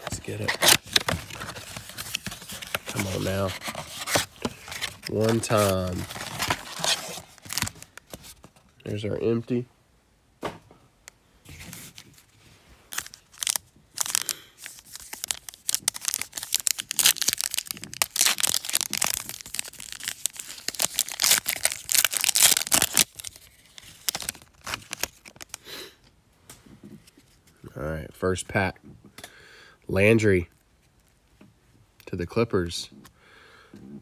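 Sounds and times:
foil pack tearing and crinkling: 0.0s - 8.4s, 12.9s - 25.6s.

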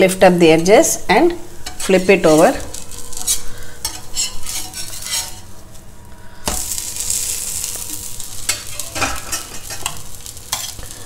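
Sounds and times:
ghee sizzling: 0.4s - 11.0s
metal spatula scraping: 1.6s - 5.7s, 6.5s - 10.9s.

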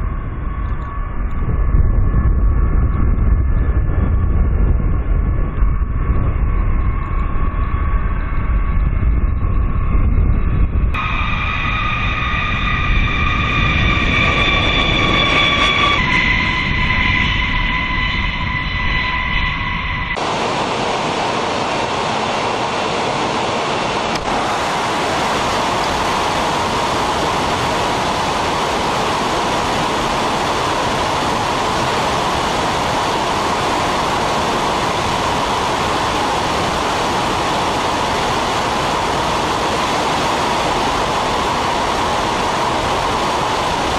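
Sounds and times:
jet engines whining: 0.0s - 43.9s
loud rush of air: 20.1s - 43.9s.

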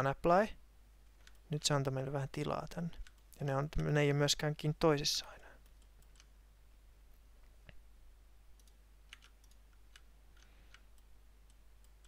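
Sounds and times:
low steady hum: 0.0s - 12.0s
computer mouse and keyboard clicks: 8.6s - 11.1s.

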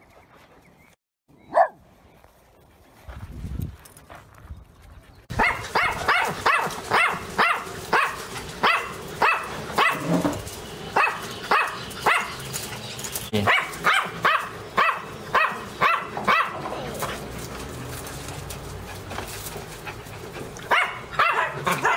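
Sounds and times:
small dog barking: 1.5s - 1.8s, 5.3s - 10.1s, 11.0s - 12.3s, 13.4s - 16.8s, 20.7s - 21.9s.

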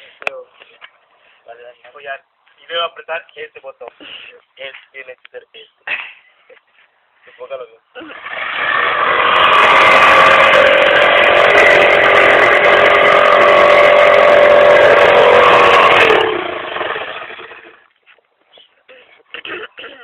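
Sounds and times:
jigsaw cutting wood: 8.1s - 17.8s
motor winding down: 8.1s - 17.8s.

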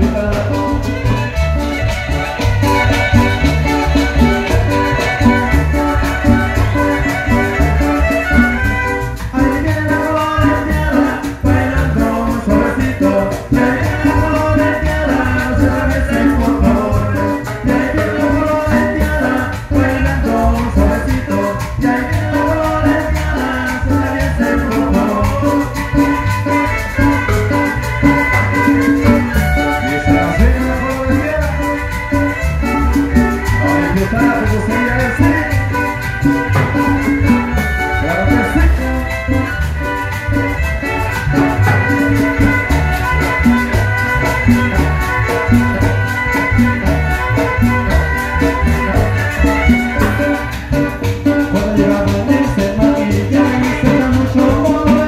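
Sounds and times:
plucked string bass: 0.0s - 55.0s
shaken percussion rhythm: 0.0s - 55.0s
violins playing melody: 0.2s - 9.5s, 25.8s - 51.2s.

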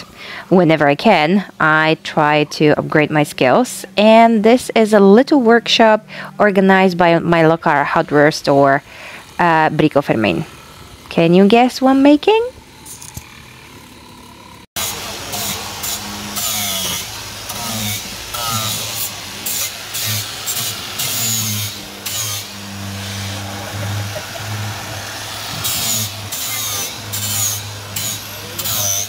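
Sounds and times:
people talking: 0.5s - 8.8s, 9.4s - 10.5s, 11.1s - 12.5s
small power tool motor: 8.1s - 29.0s.

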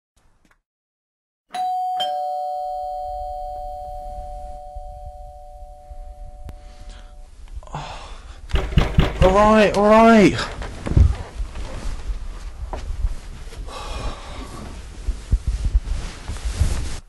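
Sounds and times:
two-tone doorbell chime: 1.5s - 7.3s.

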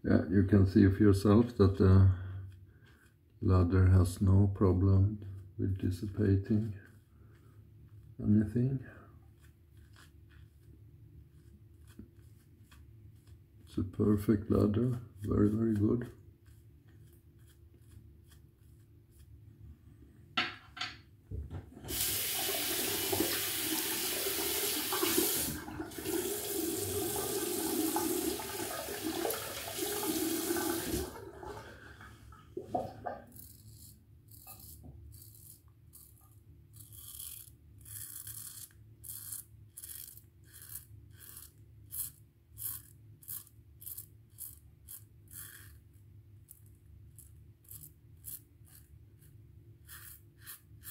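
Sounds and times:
razor scraping: 9.2s - 13.8s, 14.5s - 19.4s, 33.2s - 50.9s
tap water running into sink: 21.8s - 31.8s.

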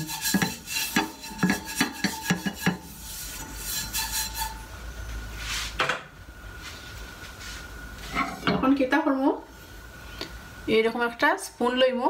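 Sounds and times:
brush scratching frying pan: 0.0s - 4.8s.

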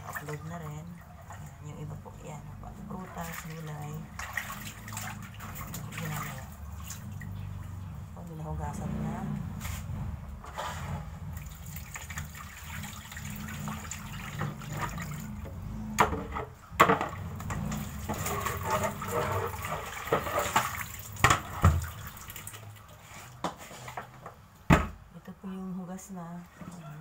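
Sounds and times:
water sloshing and pouring: 0.0s - 8.2s, 8.9s - 24.5s
sharp knocks on plastic basin: 24.7s - 25.0s.

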